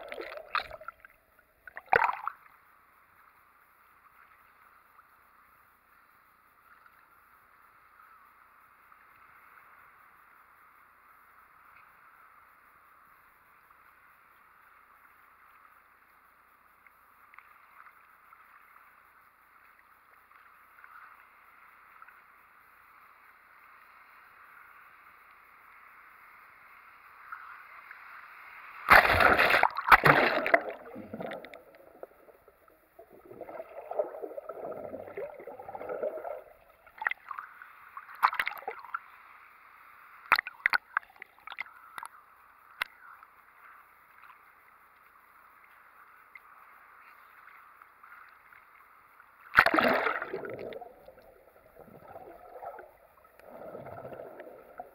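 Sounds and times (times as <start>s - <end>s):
water splashing on camera: 0.0s - 2.5s, 28.8s - 39.0s, 40.2s - 42.1s, 49.5s - 54.9s
churning sloshing water: 28.9s - 37.2s, 49.6s - 51.1s.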